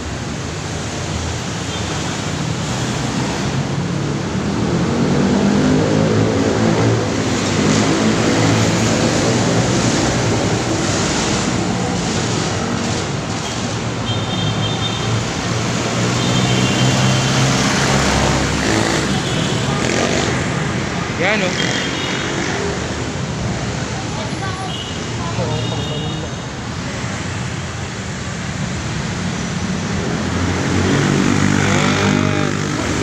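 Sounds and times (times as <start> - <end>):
cars passing: 0.0 - 33.0
motorcycles passing: 0.0 - 33.0
traffic noise: 0.0 - 33.0
bus passing: 2.2 - 14.0.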